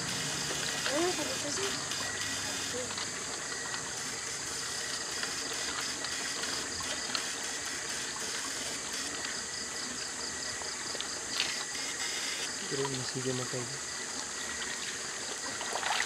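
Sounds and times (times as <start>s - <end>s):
stream water trickling over rocks: 12.5s - 16.0s.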